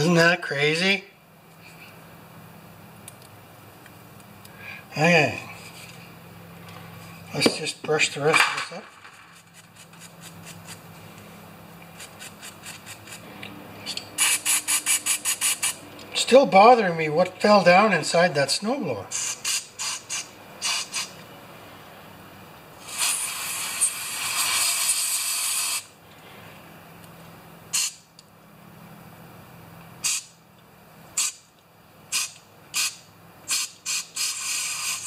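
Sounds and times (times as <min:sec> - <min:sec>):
brush scrubbing carburetor: 0:12.0 - 0:13.2, 0:14.2 - 0:15.8, 0:22.8 - 0:25.8, 0:33.5 - 0:35.0
pressurized spray hissing: 0:14.2 - 0:15.8, 0:33.5 - 0:35.0.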